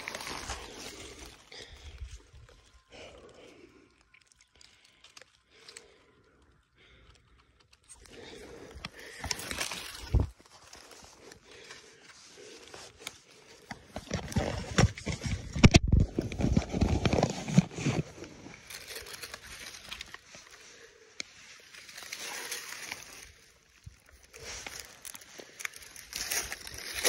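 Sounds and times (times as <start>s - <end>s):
dry leaves rustling and crunching: 0.0s - 1.9s, 9.0s - 11.6s, 18.6s - 20.6s, 21.5s - 27.0s.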